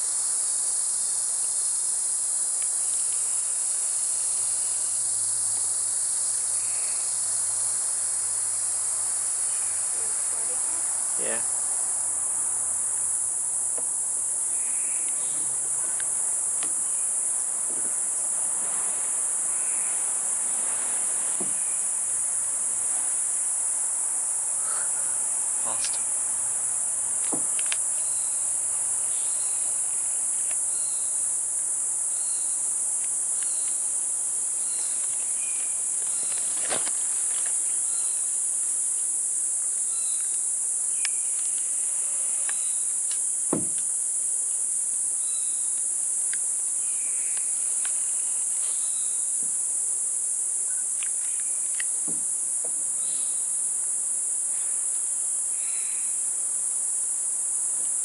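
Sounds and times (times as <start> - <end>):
insect chorus: 0.0 - 58.0
sharp knocks: 43.5 - 43.9, 52.0 - 52.8.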